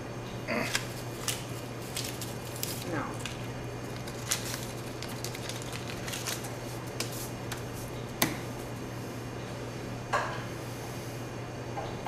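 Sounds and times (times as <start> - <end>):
steady low hum: 0.0 - 12.0
paper money rustling: 0.7 - 7.3.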